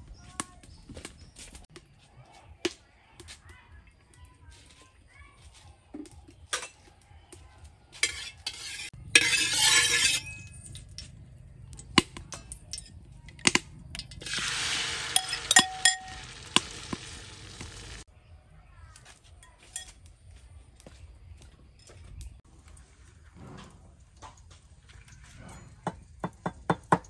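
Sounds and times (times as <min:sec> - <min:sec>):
metal spatula clinking: 0:08.0 - 0:11.2, 0:12.2 - 0:17.0, 0:19.4 - 0:20.0
hot oil sizzling in a wok: 0:14.2 - 0:18.1.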